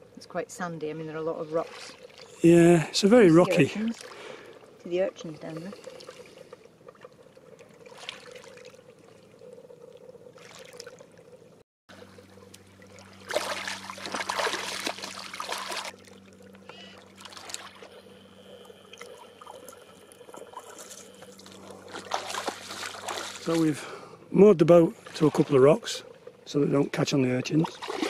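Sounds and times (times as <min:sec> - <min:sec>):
water lapping among rocks: 0:01.3 - 0:02.4, 0:03.1 - 0:11.3, 0:12.4 - 0:18.0, 0:19.0 - 0:24.0, 0:27.5 - 0:28.0.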